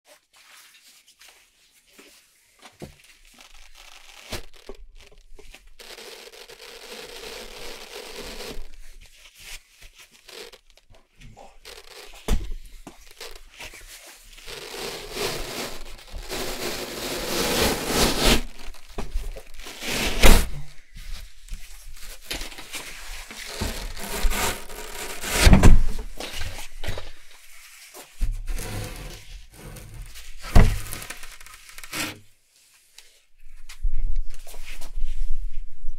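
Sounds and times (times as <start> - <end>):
velcro ripping apart: 3.0 - 9.0, 9.9 - 10.9, 11.6 - 20.6, 22.0 - 26.4, 28.6 - 32.2.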